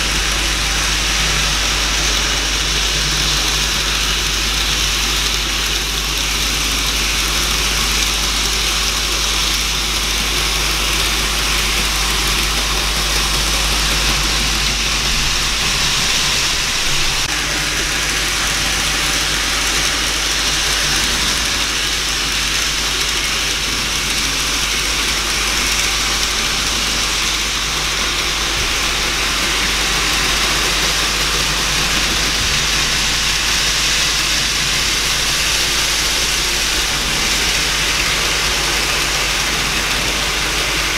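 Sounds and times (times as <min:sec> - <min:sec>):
model trains whirring: 0:00.0 - 0:40.9
low hum: 0:09.9 - 0:23.0.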